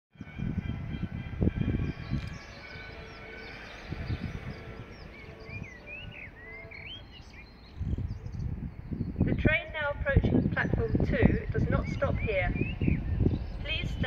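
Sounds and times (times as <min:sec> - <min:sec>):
birds chirping: 0:00.2 - 0:14.0.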